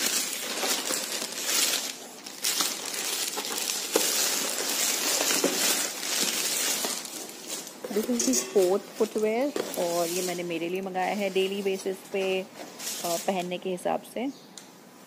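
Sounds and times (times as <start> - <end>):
plastic bag crinkling: 0.0 - 13.9.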